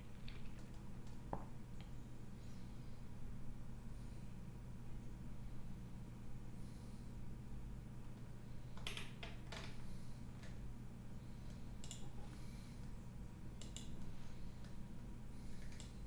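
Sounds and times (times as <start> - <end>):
steady low hum: 0.0 - 16.0
computer mouse clicks: 11.5 - 12.1, 13.6 - 14.8, 15.5 - 16.0.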